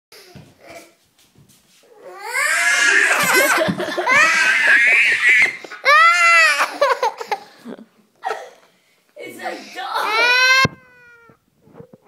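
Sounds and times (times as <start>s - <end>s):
young child shrieking with laughter: 2.2s - 6.9s, 10.0s - 11.4s.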